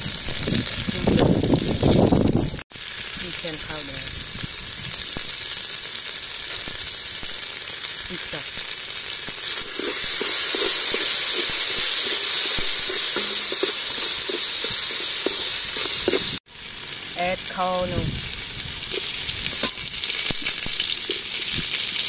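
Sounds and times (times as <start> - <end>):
paste sizzling in oil: 2.7 - 22.0
metal spoon scraping pot: 9.5 - 16.4.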